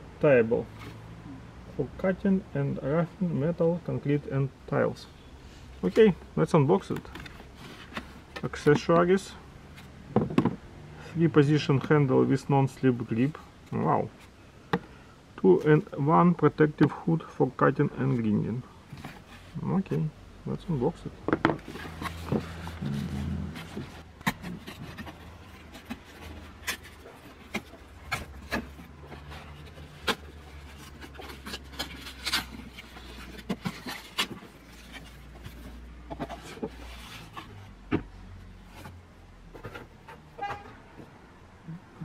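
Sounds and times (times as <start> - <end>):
cardboard box being handled: 21.4 - 40.6.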